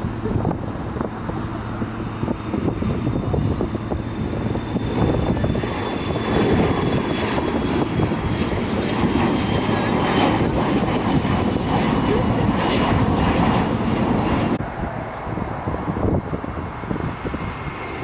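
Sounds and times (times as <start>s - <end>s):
faint high jet whine: 0.0s - 18.0s
jet engines roaring: 0.0s - 18.0s.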